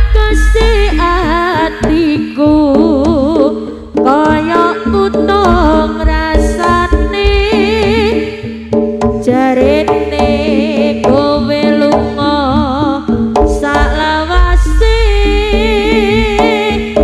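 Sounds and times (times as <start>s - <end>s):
wavering melody line: 0.0s - 8.5s, 13.5s - 17.0s
steady low held tone: 0.0s - 8.7s, 13.4s - 17.0s
hand drums beating: 0.0s - 17.0s.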